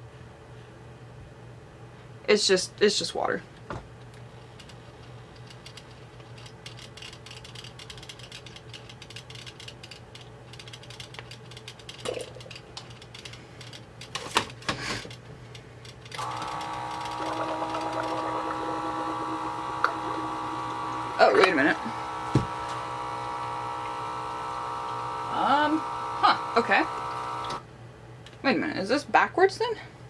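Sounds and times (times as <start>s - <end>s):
electric pump whining: 16.1s - 27.6s.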